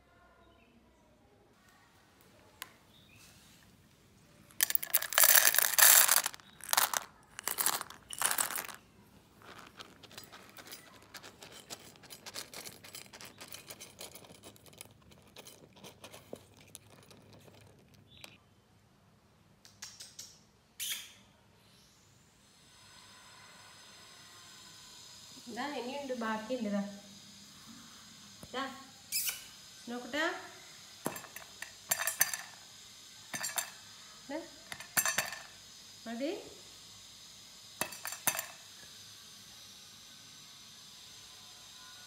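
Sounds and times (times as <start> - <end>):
cat food poured into metal bowl: 4.6 - 8.8, 9.4 - 18.2, 31.1 - 32.6, 33.4 - 33.8, 34.7 - 35.5, 37.8 - 38.6
cat eating from bowl: 4.6 - 18.4.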